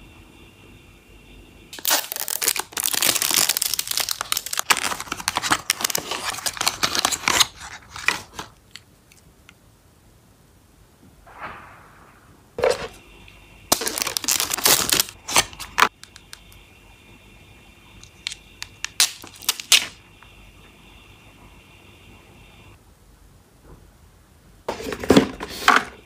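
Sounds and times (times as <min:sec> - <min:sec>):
plastic compacts clicking and tapping: 0:16.0 - 0:16.4.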